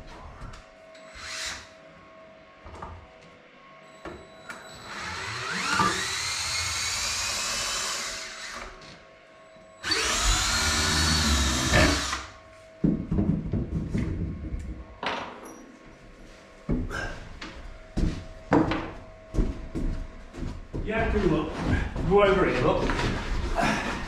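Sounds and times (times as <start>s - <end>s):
power drill drilling: 1.1s - 1.7s, 4.6s - 8.7s, 9.8s - 12.3s.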